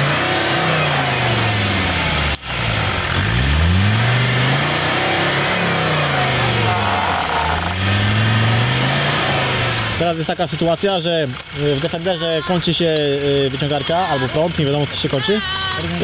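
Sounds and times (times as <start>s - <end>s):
engine revving: 0.0s - 10.6s.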